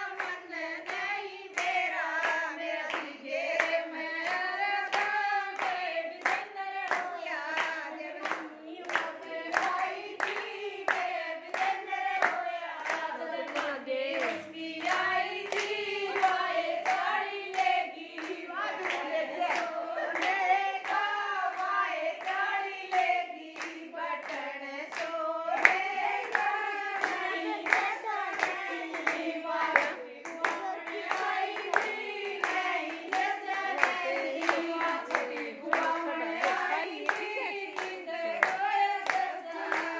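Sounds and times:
rhythmic hand claps: 0.0s - 39.9s
women singing folk song: 0.0s - 39.9s.

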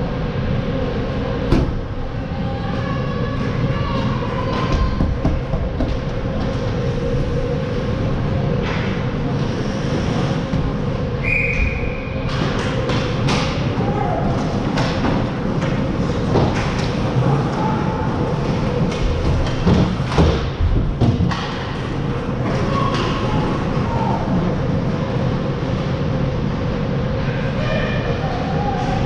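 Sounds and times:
low rink hum: 0.0s - 29.0s
short high whistle: 11.2s - 12.0s.

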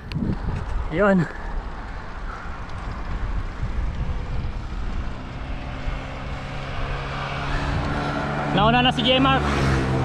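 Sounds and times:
wind rumbling on microphone: 0.0s - 8.9s
vehicle engine hum: 0.0s - 10.0s.

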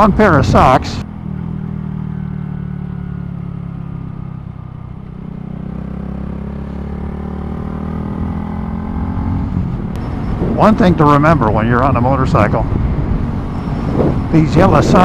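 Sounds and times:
motorcycle engine running: 1.0s - 12.0s.

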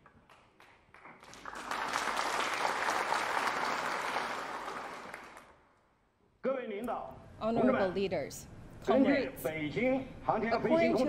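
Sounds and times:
audience applause: 0.0s - 5.6s.

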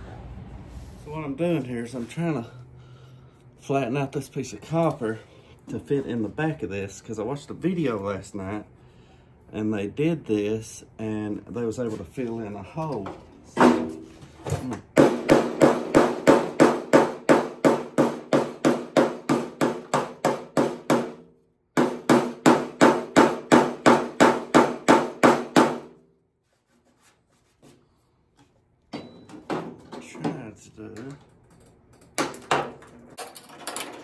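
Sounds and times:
hammer beating copper: 14.9s - 26.0s.

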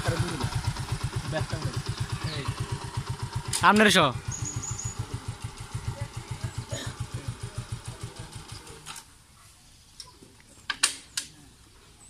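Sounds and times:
motorcycle engine idling: 0.0s - 9.1s.

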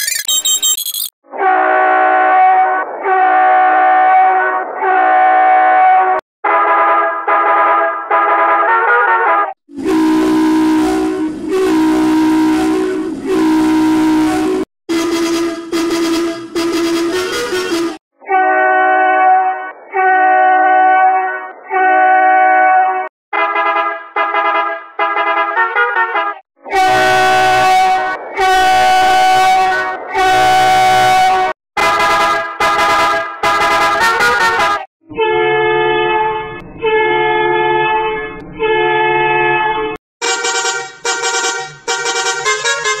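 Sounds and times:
bus horn honking: 1.4s - 43.0s.

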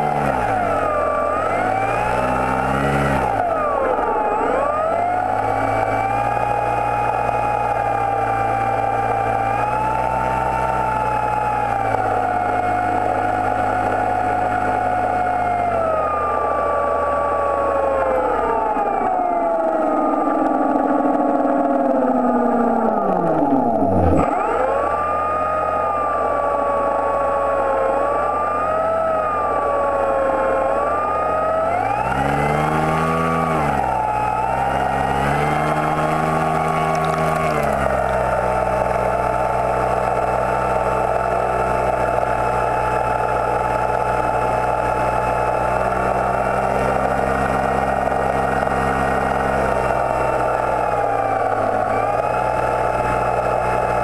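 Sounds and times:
model boat motor running: 17.7s - 54.0s.

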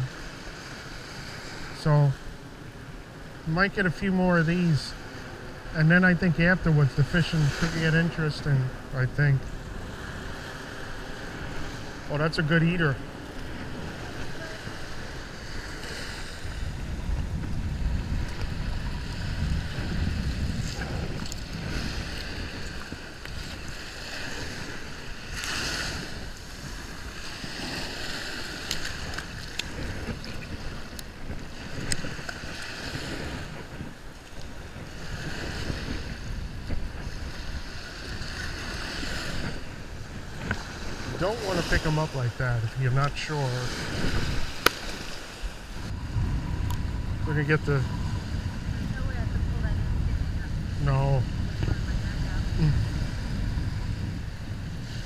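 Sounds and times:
small surf waves washing: 0.0s - 55.0s
wind buffeting microphone: 0.0s - 55.0s.

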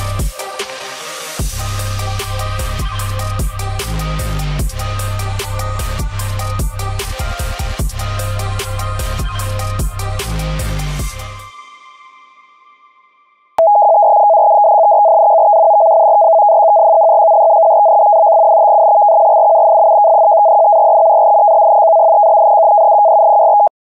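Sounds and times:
electronic music: 0.0s - 12.2s.

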